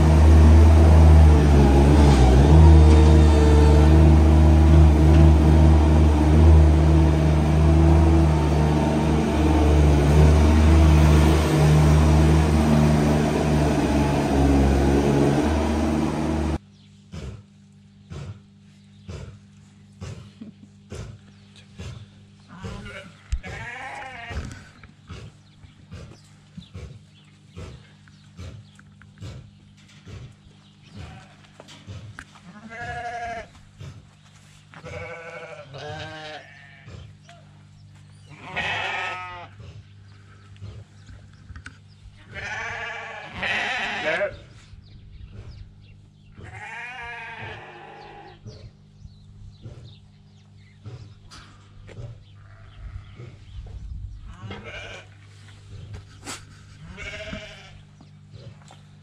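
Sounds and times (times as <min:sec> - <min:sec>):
steady low hum: 0:00.0 - 0:59.0
sheep bleating: 0:22.5 - 0:24.7, 0:30.9 - 0:31.5, 0:32.4 - 0:33.6, 0:34.8 - 0:37.0, 0:38.3 - 0:39.6, 0:42.2 - 0:44.4, 0:46.4 - 0:48.4, 0:54.3 - 0:55.2, 0:56.8 - 0:57.8.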